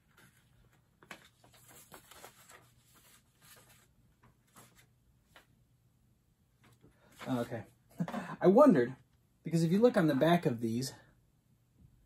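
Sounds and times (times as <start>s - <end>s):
paper leaflet rustling: 0.0s - 5.5s.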